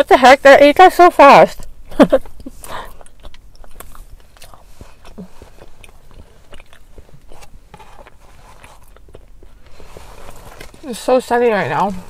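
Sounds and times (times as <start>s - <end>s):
mouth clicks and smacks: 1.6s - 9.7s
person chewing: 1.6s - 10.8s.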